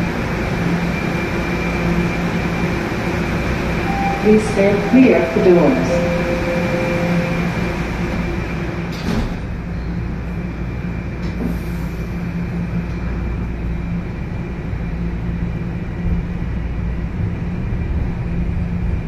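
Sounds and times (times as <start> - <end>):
subway train hum and rumble: 0.0 - 19.0.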